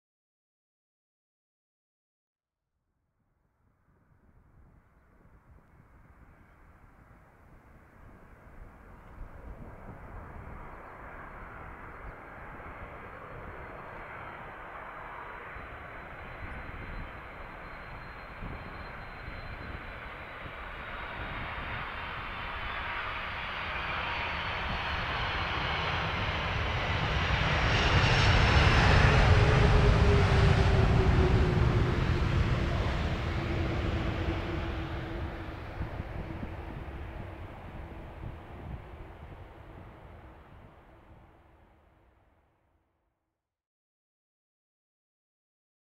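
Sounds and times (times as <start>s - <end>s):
jet airliner landing: 7.5s - 41.3s.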